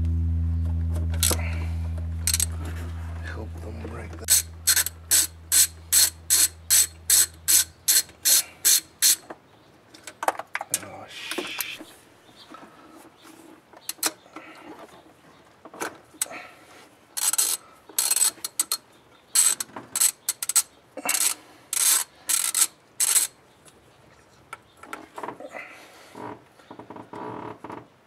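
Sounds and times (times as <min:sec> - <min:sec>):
socket ratchet clicking: 0:04.3 - 0:09.2.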